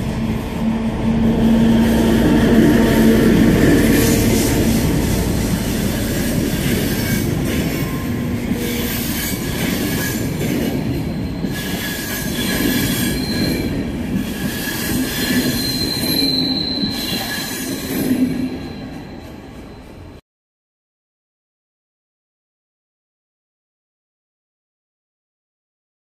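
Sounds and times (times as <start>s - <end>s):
high wheel squeal: 0.0s - 20.2s
train wheels rumbling on rails: 0.0s - 20.2s.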